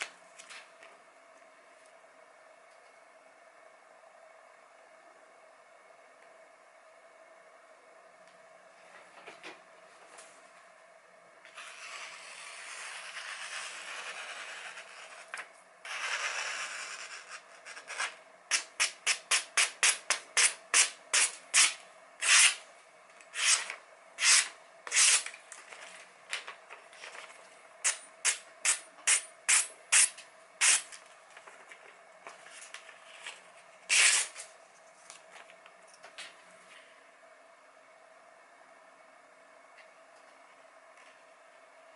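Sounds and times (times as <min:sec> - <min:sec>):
knife slicing paper: 0:23.4 - 0:25.3, 0:33.9 - 0:34.5.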